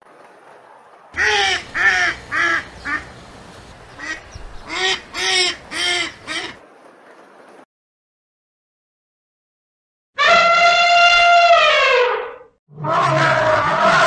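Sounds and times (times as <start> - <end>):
geese honking: 1.2 - 6.6.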